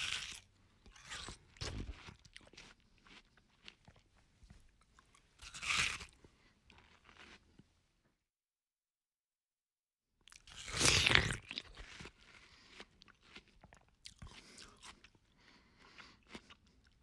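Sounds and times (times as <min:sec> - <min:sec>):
person crunching watermelon: 0:00.0 - 0:04.2, 0:04.9 - 0:07.6, 0:10.3 - 0:17.0.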